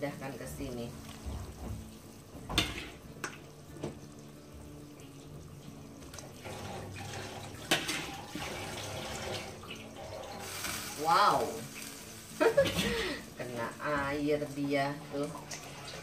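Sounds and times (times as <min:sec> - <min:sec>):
broth boiling and bubbling: 0:00.0 - 0:16.0.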